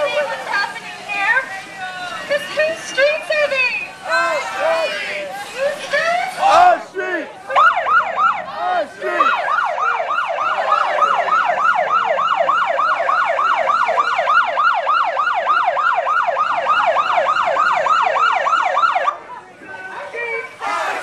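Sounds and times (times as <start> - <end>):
police siren yelp: 7.5 - 19.2.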